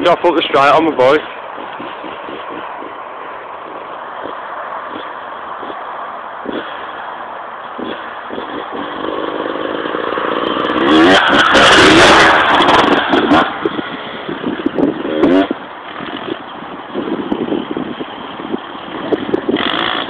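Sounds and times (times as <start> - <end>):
dirt bike engine revving: 0.0 - 7.1, 7.7 - 20.0.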